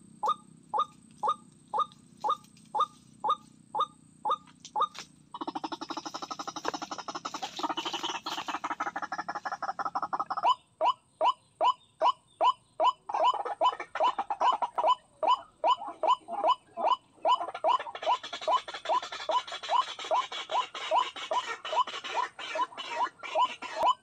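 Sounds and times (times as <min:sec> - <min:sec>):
waterhen calls: 0:00.8 - 0:24.0.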